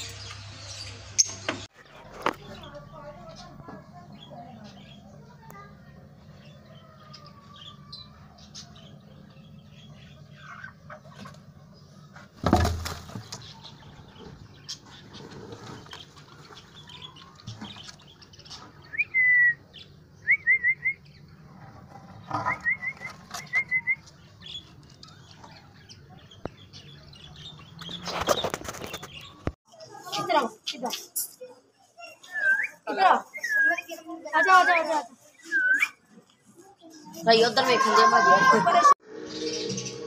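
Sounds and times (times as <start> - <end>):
parakeets flapping and scuffling: 12.4 - 13.7, 27.4 - 31.1.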